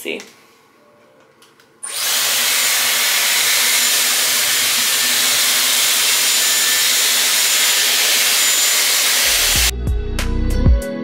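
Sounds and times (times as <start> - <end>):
hair styler blowing air: 1.8 - 9.7.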